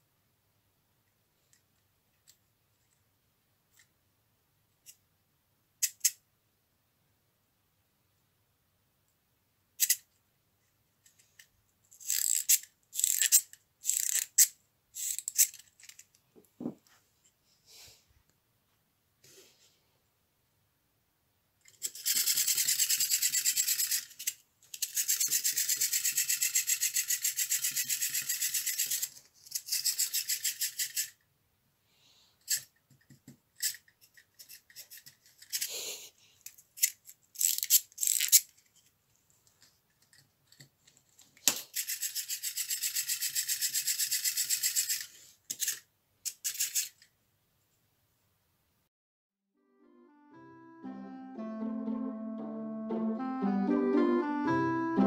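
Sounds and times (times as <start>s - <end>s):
clockwork toy whirring: 12.0s - 15.6s, 21.7s - 31.2s, 36.8s - 38.4s, 41.7s - 47.0s.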